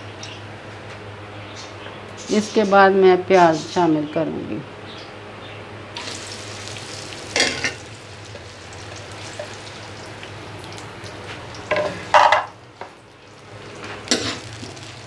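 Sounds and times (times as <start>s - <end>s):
onions sizzling in oil: 6.0s - 15.0s.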